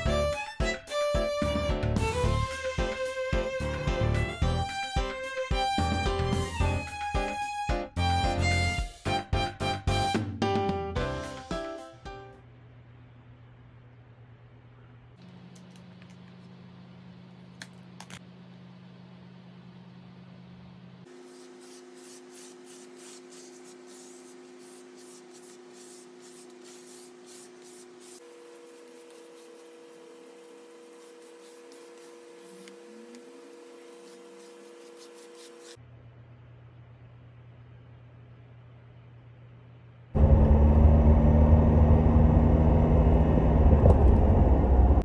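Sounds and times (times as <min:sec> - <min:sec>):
hand rubbing strokes: 0:21.1 - 0:35.8.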